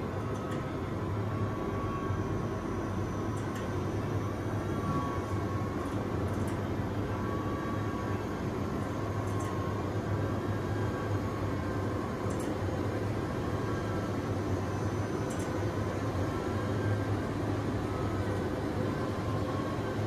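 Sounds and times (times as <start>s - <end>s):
factory machinery droning: 0.0s - 20.0s.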